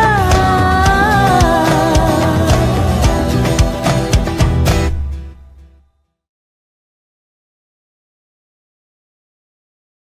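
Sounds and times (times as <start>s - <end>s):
faint song: 0.0s - 5.9s.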